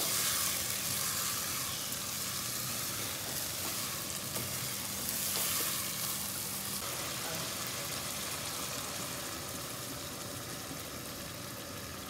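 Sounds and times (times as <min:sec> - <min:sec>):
wooden spoon stirring: 0:00.0 - 0:06.4
vegetables sizzling in a pot: 0:00.0 - 0:12.0.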